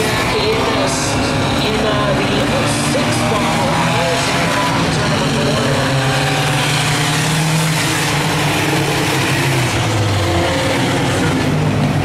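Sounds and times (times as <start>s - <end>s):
race car engines running hard: 0.0s - 12.0s.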